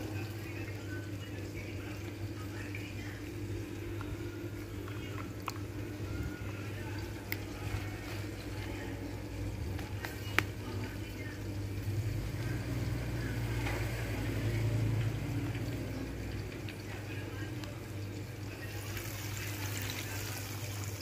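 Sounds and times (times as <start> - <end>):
steady low hum: 0.0 - 19.6
flour scrunching in bowl: 3.9 - 11.0.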